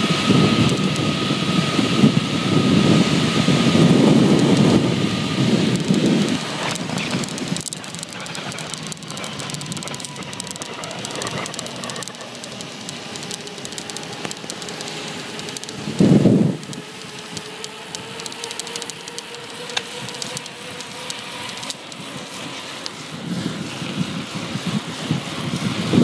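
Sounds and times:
wind buffeting microphone: 0:00.0 - 0:18.2, 0:23.0 - 0:26.0
bicycle tyres on tarmac: 0:00.0 - 0:26.0
light rattling clicks: 0:05.7 - 0:22.1.

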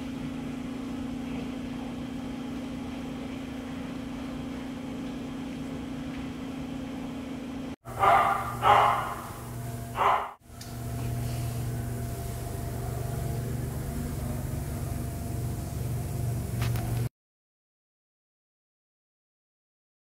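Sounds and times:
steady low hum: 0:00.0 - 0:17.1
dog barking: 0:07.9 - 0:09.4, 0:10.0 - 0:10.4.

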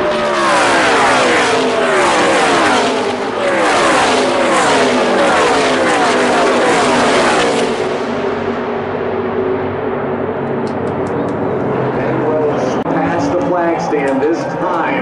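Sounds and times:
race truck engines passing: 0:00.0 - 0:14.7.

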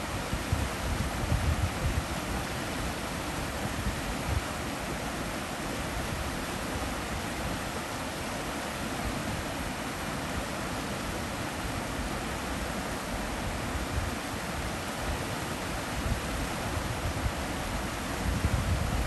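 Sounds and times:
stream rushing over rocks: 0:00.0 - 0:19.0.

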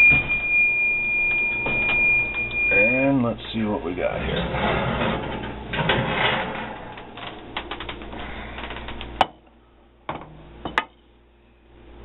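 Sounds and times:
dish scraping on oven rack: 0:04.0 - 0:07.5.

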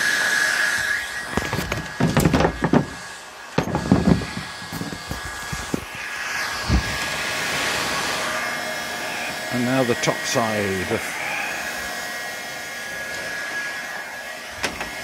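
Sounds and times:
heat gun blowing: 0:00.0 - 0:15.0
handling knocks and clatter: 0:01.3 - 0:05.9.

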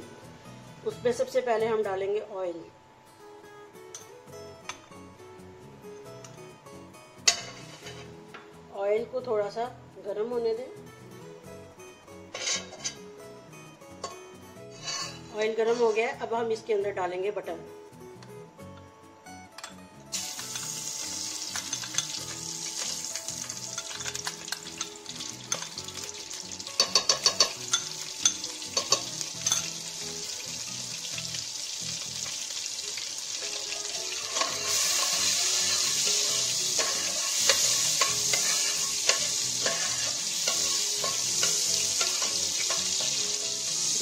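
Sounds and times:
metal spoon clinking against pot: 0:07.2 - 0:08.0, 0:21.5 - 0:22.9, 0:23.5 - 0:25.8, 0:26.8 - 0:29.8, 0:34.2 - 0:43.2
butter sizzling in hot oil: 0:20.1 - 0:44.0.

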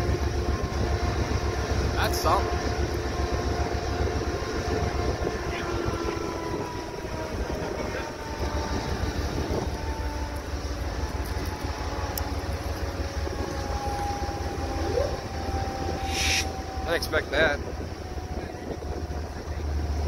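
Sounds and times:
diesel locomotive idling: 0:00.0 - 0:20.0
faint engine whine: 0:00.0 - 0:20.0.

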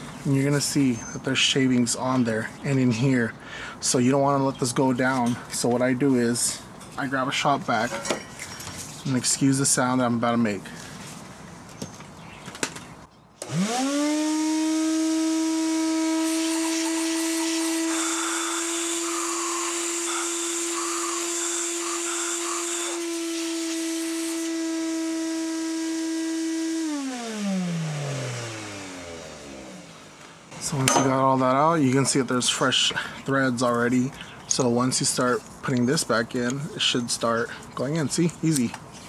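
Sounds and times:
shop vac motor whining: 0:13.4 - 0:30.8
vacuum hose hissing: 0:14.8 - 0:30.5.

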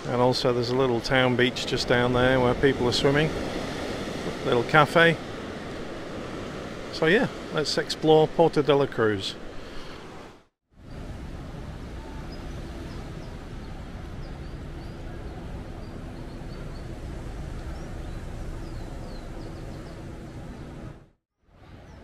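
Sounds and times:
low rumble of traffic: 0:10.7 - 0:22.0
small birds chirping: 0:12.2 - 0:20.8.

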